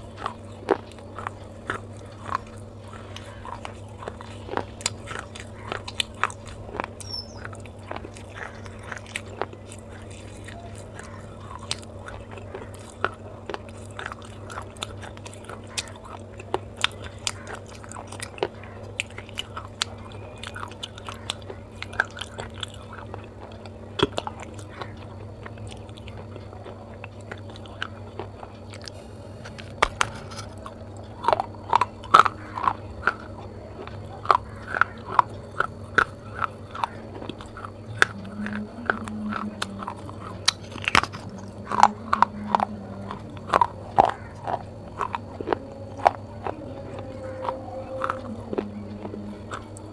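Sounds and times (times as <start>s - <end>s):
clay pieces crunching: 0.0s - 26.2s
low steady hum: 0.0s - 49.9s.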